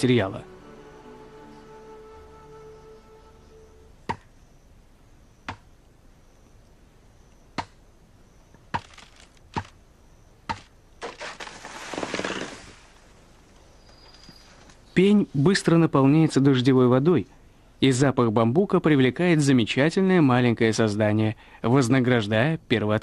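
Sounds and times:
machete chopping bamboo: 0:04.1 - 0:04.3, 0:05.5 - 0:05.7, 0:07.6 - 0:07.8, 0:08.7 - 0:09.8, 0:10.5 - 0:11.7
bamboo stalk falling with rustling leaves: 0:08.7 - 0:09.8, 0:10.5 - 0:13.2.

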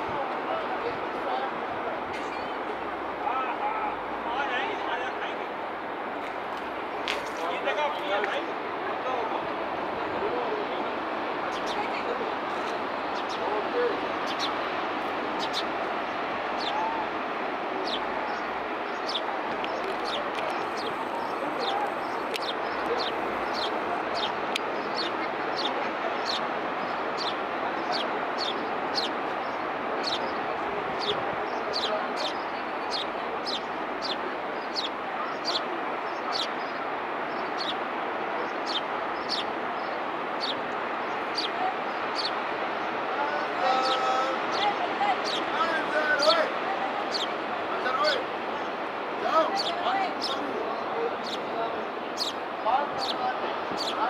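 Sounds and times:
bird chirping: 0:11.5 - 0:11.9, 0:12.6 - 0:13.5, 0:14.2 - 0:14.6, 0:15.4 - 0:15.7, 0:16.6 - 0:16.9, 0:17.8 - 0:30.4, 0:31.0 - 0:37.8, 0:38.4 - 0:42.4, 0:43.8 - 0:45.6, 0:47.1 - 0:47.4, 0:52.2 - 0:52.4, 0:53.0 - 0:54.0.

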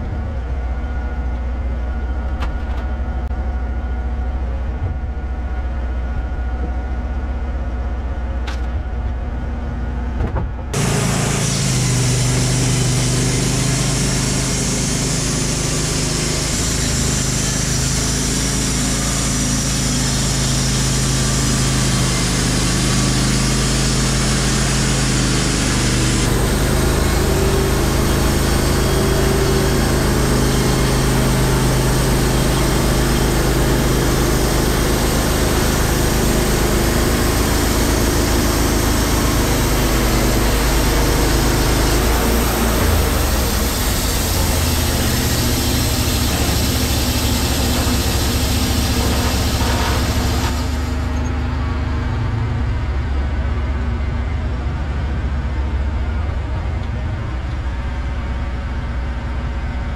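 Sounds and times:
sawmill engine running: 0:00.0 - 0:59.9
band saw cutting log: 0:10.8 - 0:51.3.

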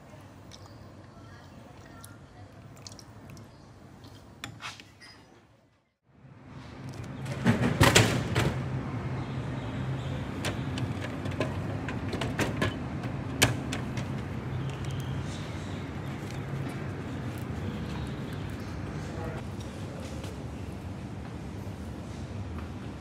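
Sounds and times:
vending machine clicks and clatter: 0:10.2 - 0:15.4.

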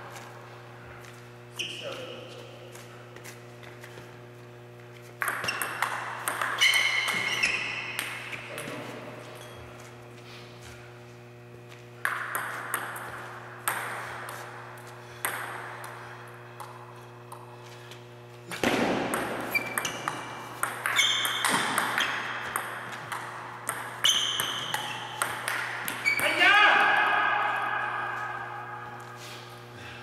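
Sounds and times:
table tennis ball hits: 0:05.2 - 0:08.9, 0:12.0 - 0:14.4, 0:15.2 - 0:16.0, 0:18.5 - 0:28.7
short high squeaks: 0:06.6 - 0:08.4, 0:20.9 - 0:22.2, 0:24.0 - 0:25.2.

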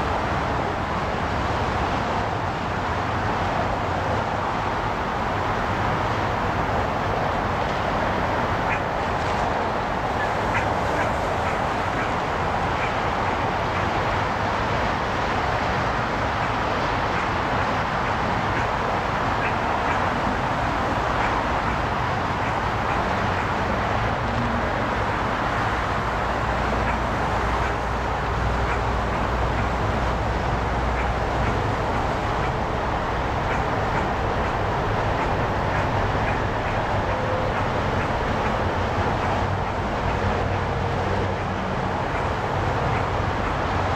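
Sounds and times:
freeway traffic roar: 0:00.0 - 0:43.9.

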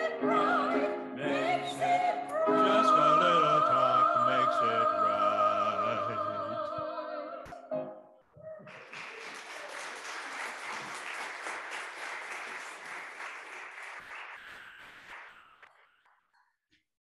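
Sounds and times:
crowd applauding: 0:08.4 - 0:16.1.

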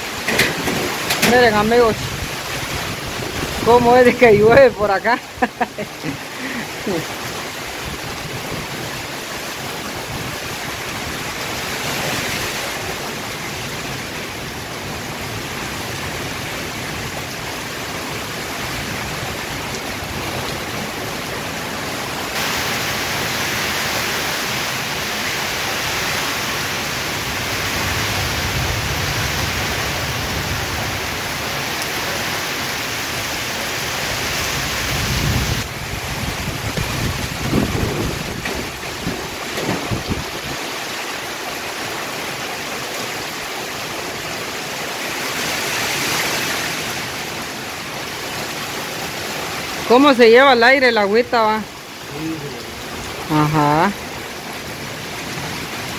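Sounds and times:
heavy rain in strong wind: 0:00.0 - 0:55.9
low rumbling: 0:26.9 - 0:31.8.

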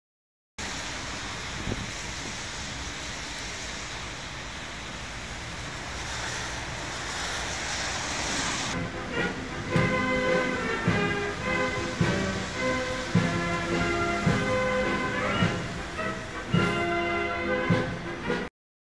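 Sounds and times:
wind on microphone: 0:01.1 - 0:03.4
music: 0:08.8 - 0:18.5.

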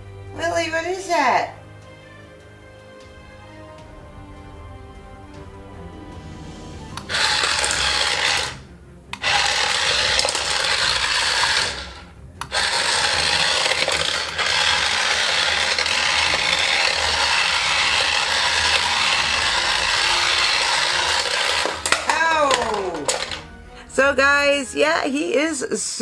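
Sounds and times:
toy motor and gears whirring: 0:07.0 - 0:08.6, 0:09.2 - 0:23.5.

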